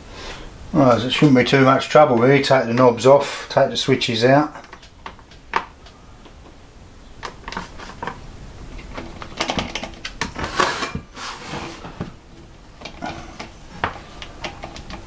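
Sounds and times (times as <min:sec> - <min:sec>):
clicks and rattles of handling parts: 0:04.5 - 0:06.5, 0:07.2 - 0:15.0
plastic case scraping on wood: 0:08.8 - 0:12.2.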